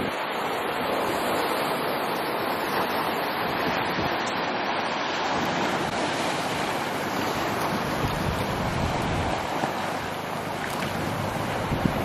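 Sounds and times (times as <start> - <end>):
wind on microphone: 0.0 - 4.5, 5.3 - 12.0
ocean surf washing on shore: 0.0 - 12.0.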